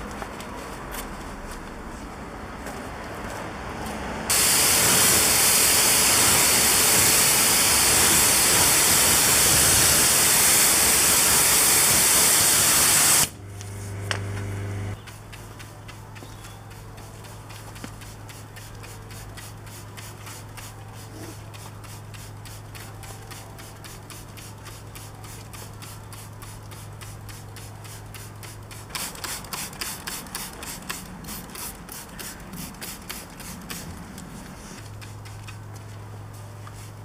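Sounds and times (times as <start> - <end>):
brush scrubbing a surface: 15.0 - 37.0.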